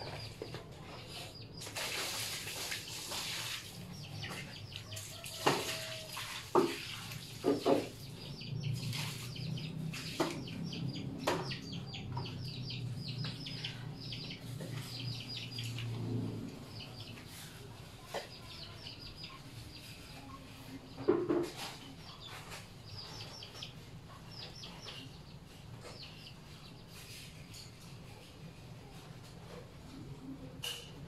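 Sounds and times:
small birds chirping: 0.0 - 29.0
water splashing: 1.6 - 11.3
water running into basin: 1.6 - 11.4
plastic tubs knocking: 7.4 - 8.0.

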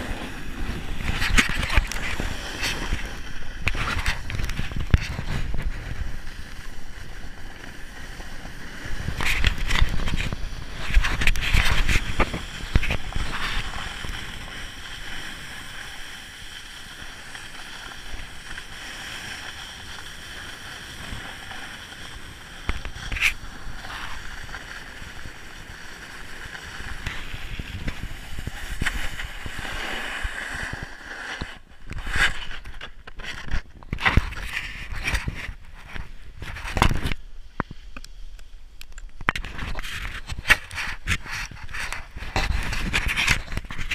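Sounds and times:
snowboard scraping on snow: 0.0 - 38.3, 39.4 - 43.9.

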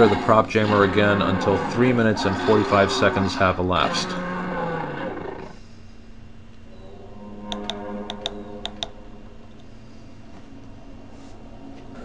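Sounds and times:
animal roar through small speaker: 0.0 - 5.6, 6.8 - 9.4
tactile button clicks: 7.5 - 9.0.

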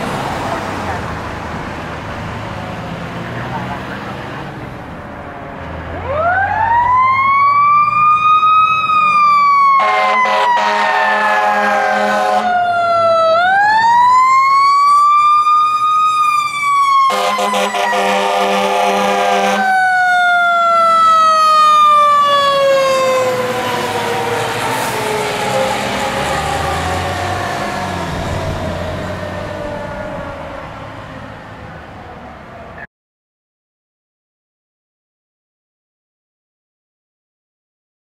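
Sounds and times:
diesel engine rumbling: 0.0 - 32.8
fire engine siren wailing: 0.0 - 32.9
air horn blasts: 9.8 - 12.6, 17.1 - 19.8.

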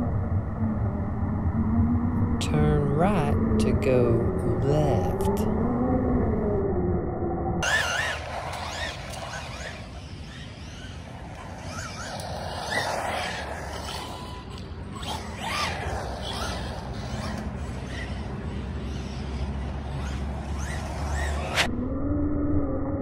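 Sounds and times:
electric motor whining: 7.6 - 21.7
truck tyres sliding on asphalt: 7.6 - 21.7.

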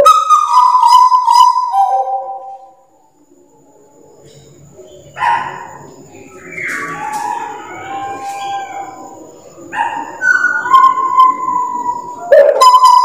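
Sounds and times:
bird singing whistled notes: 0.0 - 2.9, 6.1 - 9.2, 9.8 - 13.0.

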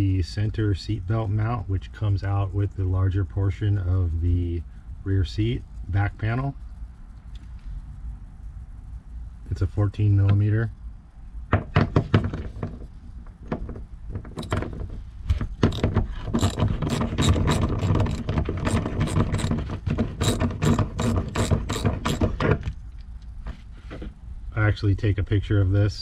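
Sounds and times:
socket ratchet clicking: 15.5 - 22.6.

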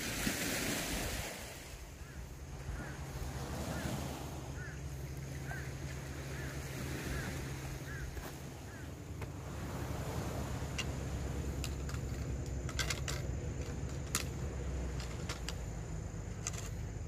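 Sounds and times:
low wind: 0.0 - 17.0
surf rumble: 0.0 - 17.0
sharp light clicks and clinks: 10.7 - 16.9.

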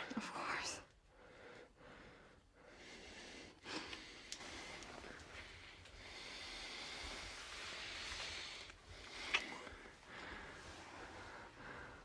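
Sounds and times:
soft close breathing: 0.0 - 12.0
kiss: 9.2 - 9.6.

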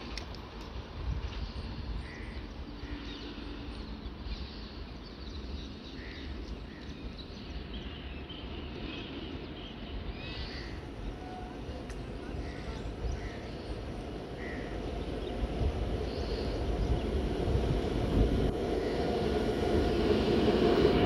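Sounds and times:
birds chirping: 1.3 - 20.2
steady low rumble: 10.6 - 21.0.

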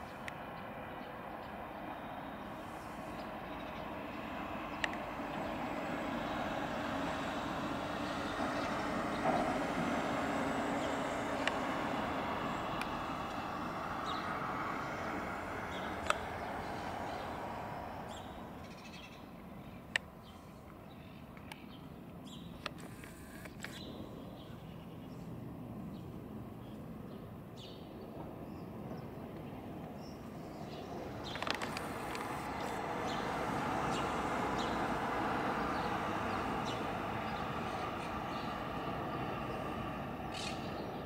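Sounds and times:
jet airliner passing overhead: 0.0 - 18.8, 28.0 - 41.0.

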